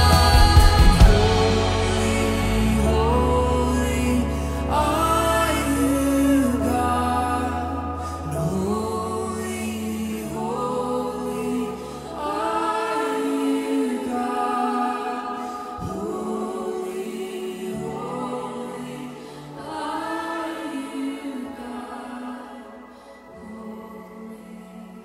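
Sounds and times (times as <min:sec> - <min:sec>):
sustained low chords: 0:00.0 - 0:09.2
voices singing worship song: 0:00.0 - 0:25.0.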